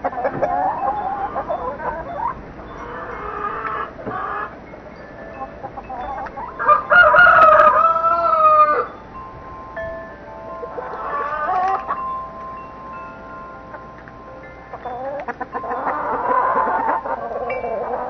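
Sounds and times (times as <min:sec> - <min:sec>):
hen calls: 0:00.0 - 0:09.0, 0:10.2 - 0:12.5, 0:14.7 - 0:18.0
wind chime ringing: 0:00.0 - 0:18.0
rooster crowing: 0:05.9 - 0:09.0, 0:10.7 - 0:12.0.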